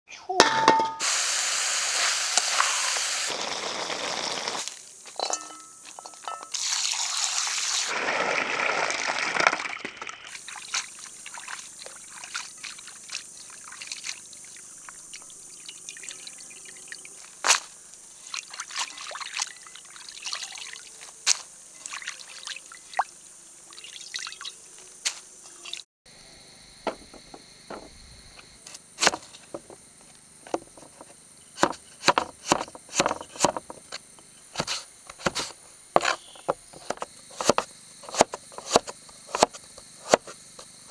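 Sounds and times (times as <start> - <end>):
water pouring and splashing: 1.0 - 24.6.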